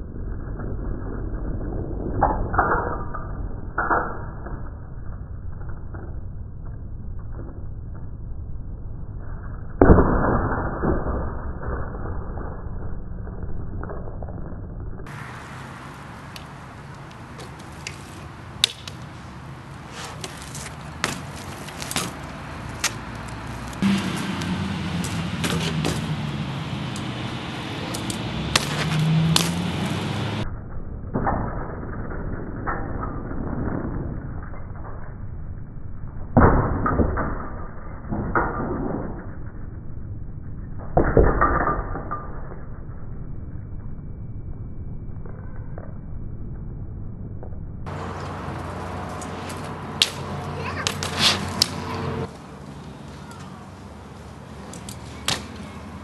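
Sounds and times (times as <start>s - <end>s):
bike tyres rolling on concrete: 0.0s - 9.8s, 10.7s - 44.1s, 44.7s - 56.0s
bike clicks and knocks: 15.1s - 30.0s, 47.8s - 53.6s, 54.2s - 56.0s.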